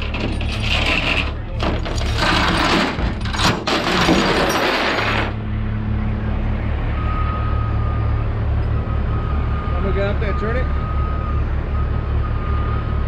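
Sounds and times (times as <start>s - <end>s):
metal clattering and jingling: 0.0s - 5.4s
diesel truck engine running: 0.0s - 13.0s
long warning beep: 7.0s - 8.2s, 8.8s - 13.0s.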